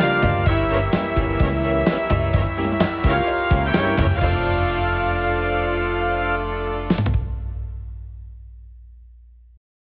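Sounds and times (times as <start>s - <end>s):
background music with held chord: 0.0s - 7.9s.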